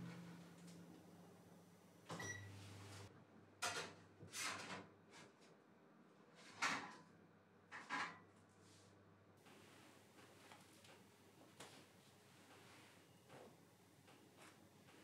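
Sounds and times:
low hum: 0.0s - 3.1s
oven control panel beep: 2.1s - 2.9s.

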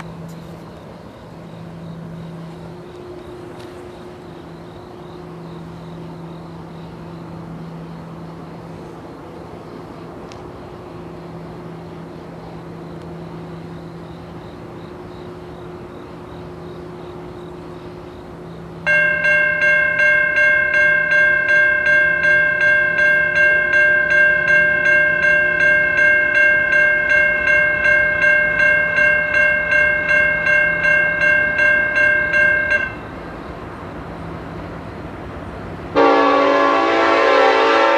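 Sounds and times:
crossing bell ringing: 18.8s - 33.4s, 36.0s - 37.9s.

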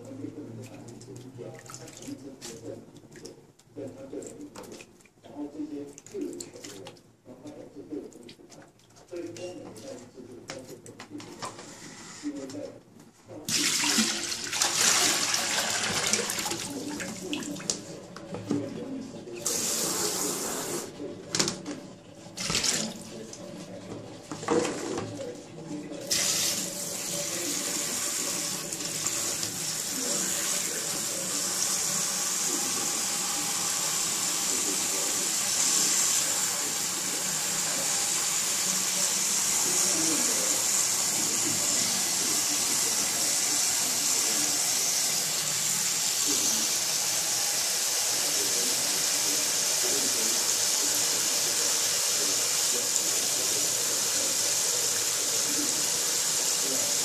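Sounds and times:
tap water running into a pot: 13.5s - 18.8s, 19.4s - 25.2s, 26.0s - 57.0s.

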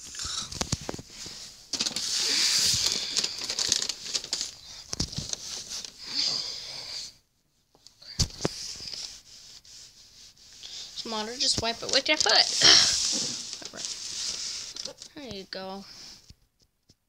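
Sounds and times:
wrapping paper rustling: 0.0s - 6.2s, 8.2s - 15.1s.

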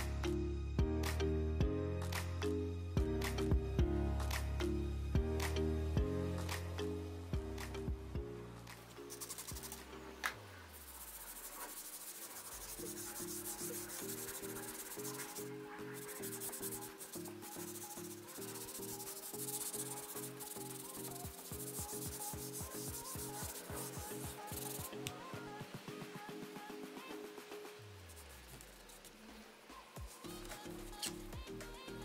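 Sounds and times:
low stepping music melody: 0.0s - 10.8s
brush scrubbing: 9.0s - 9.9s, 10.5s - 24.9s, 27.8s - 29.2s.

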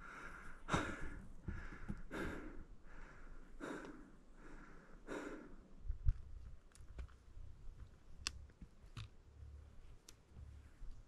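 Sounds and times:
man breathing hard: 0.0s - 5.7s.

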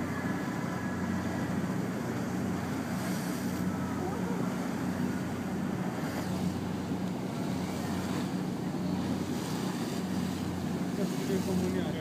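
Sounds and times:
boat engine humming: 0.0s - 12.0s
wind and water hiss: 0.0s - 12.0s.

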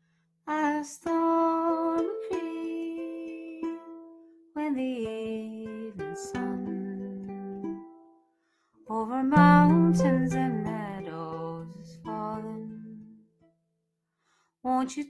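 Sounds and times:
strummed ukulele: 0.7s - 8.2s, 8.9s - 13.3s
wordless melody line: 9.1s - 13.2s.

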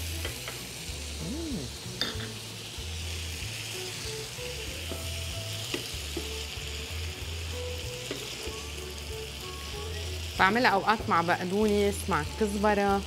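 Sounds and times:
vegetables sizzling in a frying pan: 0.0s - 13.0s.

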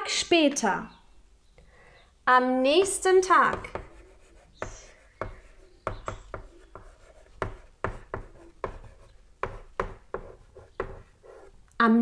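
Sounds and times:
chalk tapping and scratching: 2.8s - 11.6s.

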